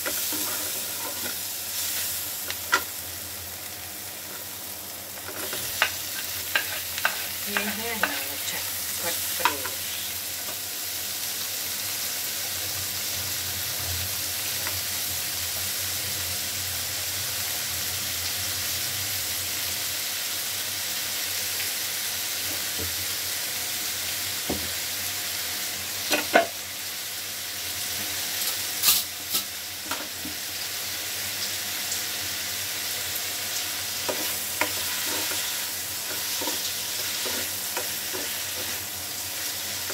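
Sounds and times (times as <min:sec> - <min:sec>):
food sizzling in a frying pan: 0:00.0 - 0:39.9.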